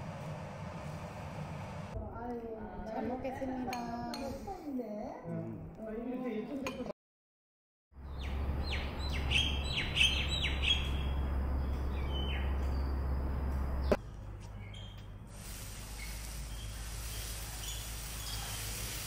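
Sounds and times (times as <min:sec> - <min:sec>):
birds chirping: 0:08.0 - 0:15.2, 0:16.0 - 0:18.5.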